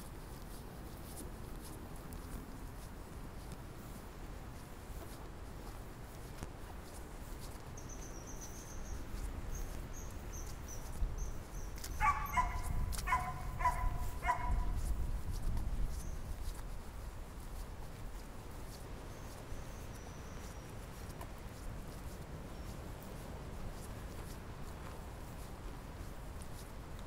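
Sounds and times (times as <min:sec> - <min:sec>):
small bird chirping: 0:07.8 - 0:14.4
wind rumble: 0:11.0 - 0:17.3
dog barking: 0:12.0 - 0:14.8.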